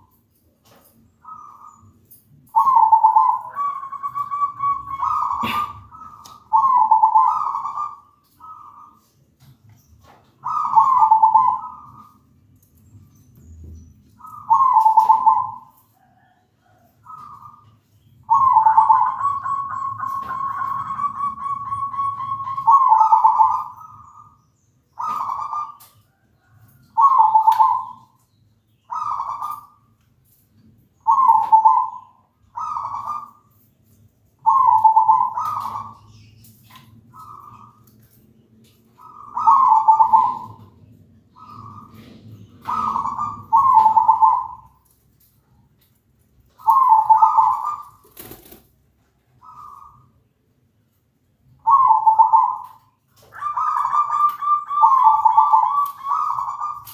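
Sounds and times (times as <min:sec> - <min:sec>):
dove cooing: 0:01.2 - 0:09.1, 0:10.4 - 0:12.2, 0:14.2 - 0:24.4, 0:25.0 - 0:28.2, 0:28.9 - 0:29.8, 0:31.0 - 0:33.5, 0:34.4 - 0:36.3, 0:38.9 - 0:44.8, 0:46.6 - 0:48.6, 0:49.4 - 0:50.2, 0:51.6 - 0:56.9.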